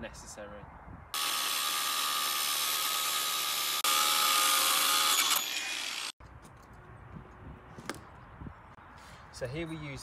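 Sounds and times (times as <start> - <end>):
angle grinder cutting steel: 1.2 - 6.2.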